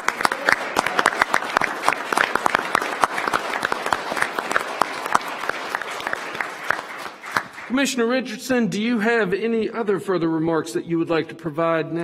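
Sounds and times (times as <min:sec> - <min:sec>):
audience applauding: 0:00.0 - 0:07.9.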